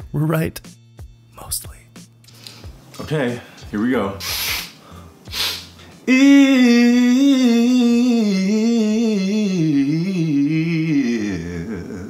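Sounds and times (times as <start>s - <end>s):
man singing a vocal riff: 6.0s - 12.0s.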